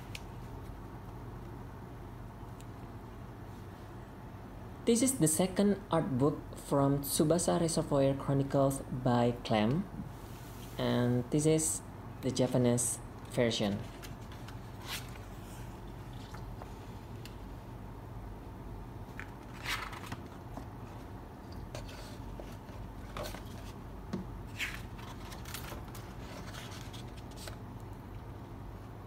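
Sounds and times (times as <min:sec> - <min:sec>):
steady low hum: 0:00.0 - 0:29.0
paper rustling and scraping: 0:13.8 - 0:15.6, 0:19.2 - 0:21.1, 0:21.7 - 0:23.8, 0:24.5 - 0:27.6
book pages turning: 0:13.8 - 0:16.5, 0:19.1 - 0:21.1, 0:24.4 - 0:28.0.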